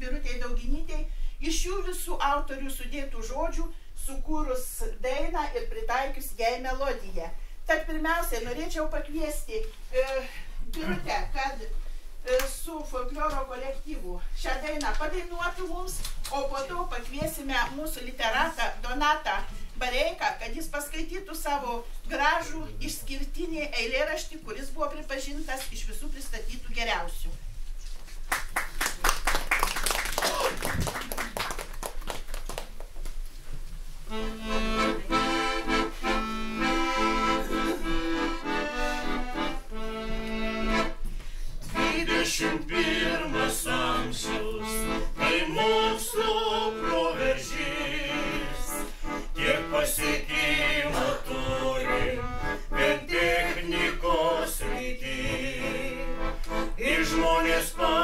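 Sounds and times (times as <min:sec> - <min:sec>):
accordion playing: 0:34.1 - 0:58.0
group of voices singing: 0:41.8 - 0:58.0.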